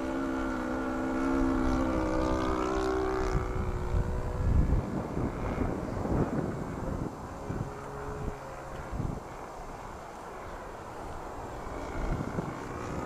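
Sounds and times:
model plane engine droning: 0.0s - 13.0s
wind rumble on microphone: 0.0s - 13.0s.

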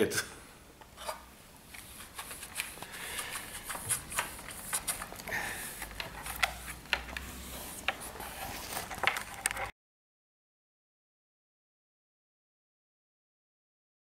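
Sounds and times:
cloth rustling: 1.7s - 9.7s.

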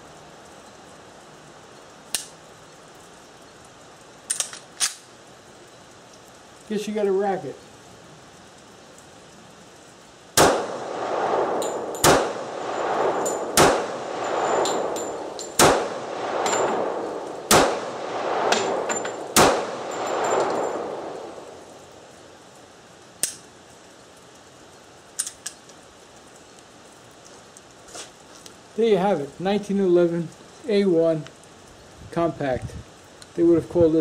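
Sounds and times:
sharp clicks: 2.1s - 2.4s, 23.2s - 23.5s
pistol shots with echo: 10.4s - 21.5s.

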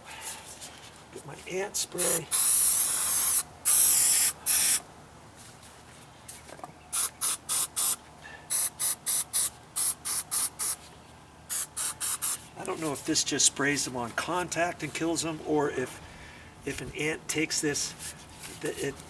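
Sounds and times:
spray can hissing: 2.0s - 4.8s, 6.9s - 10.8s, 11.5s - 12.4s.

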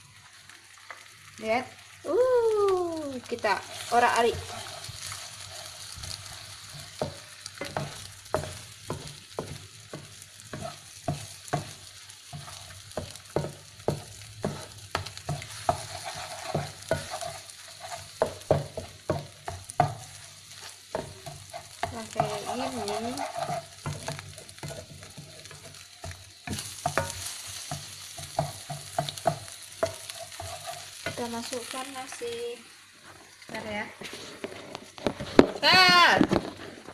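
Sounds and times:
eggs sizzling in hot oil: 0.0s - 36.9s
wooden spatula scraping a pan: 3.3s - 32.3s, 32.9s - 36.9s.

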